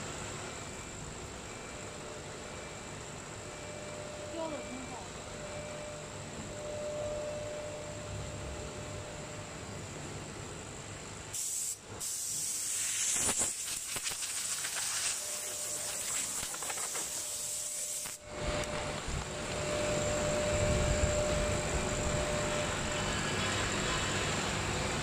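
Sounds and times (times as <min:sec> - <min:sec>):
compressed air gun hissing: 0:11.3 - 0:18.2.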